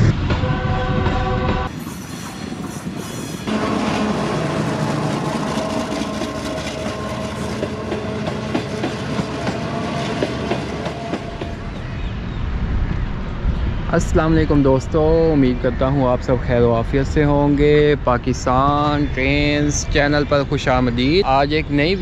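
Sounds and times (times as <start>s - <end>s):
train rolling drone: 0.0s - 22.0s
train wheels clicking over rail joints: 5.3s - 11.7s.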